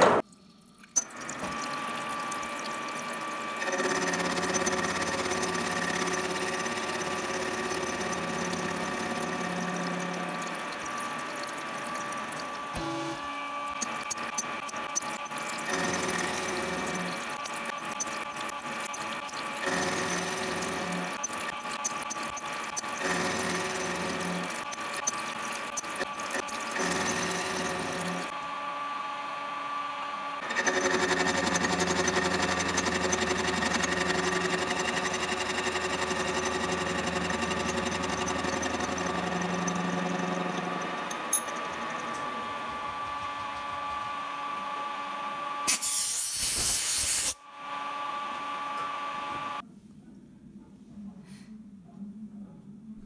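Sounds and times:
coolant flowing: 0:00.2 - 0:28.4, 0:30.4 - 0:44.0
gear cutter whining: 0:01.0 - 0:28.4, 0:30.4 - 0:44.6
burst of hiss: 0:45.7 - 0:47.4.

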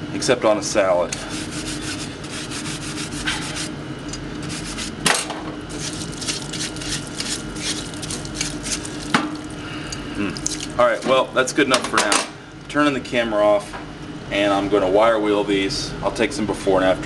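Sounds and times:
brush scrubbing metal tool: 0:01.2 - 0:03.7, 0:04.4 - 0:05.0, 0:05.7 - 0:09.1.

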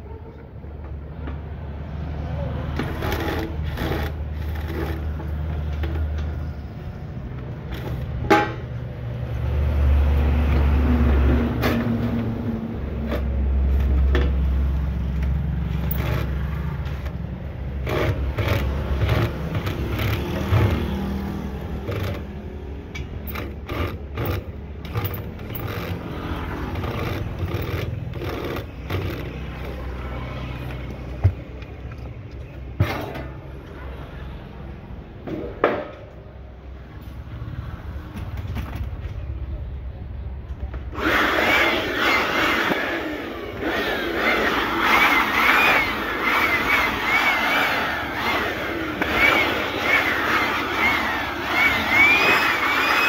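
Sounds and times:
cordless driver running: 0:02.8 - 0:06.0, 0:12.8 - 0:30.8, 0:40.9 - 0:53.0
metal parts and tools clanking: 0:15.1 - 0:17.2, 0:22.9 - 0:30.0, 0:30.6 - 0:33.5.

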